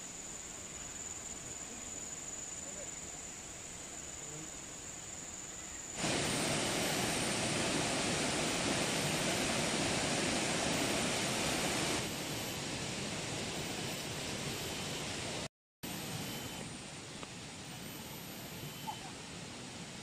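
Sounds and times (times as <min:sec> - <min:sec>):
outdoor background noise: 0:00.0 - 0:20.0
pot hissing on stove: 0:05.9 - 0:16.2.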